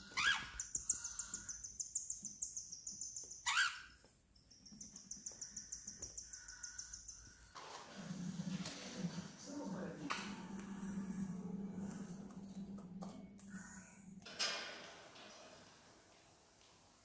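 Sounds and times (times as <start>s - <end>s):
bird chicks chattering: 4.4s - 7.5s.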